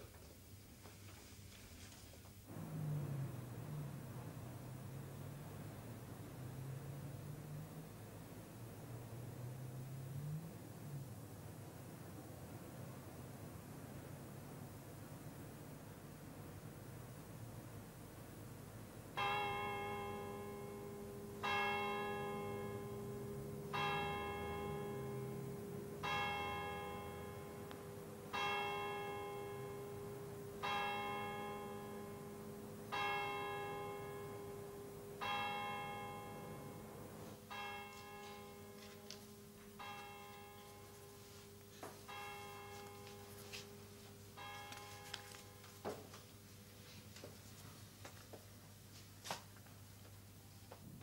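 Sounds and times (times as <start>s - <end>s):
bell striking: 19.2s - 41.2s, 42.0s - 45.6s.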